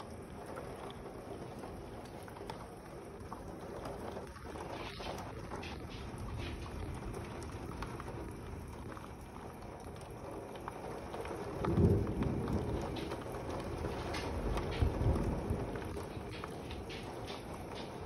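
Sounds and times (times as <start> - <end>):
steady rain: 0.0 - 18.0
thunder rumble: 0.0 - 18.0.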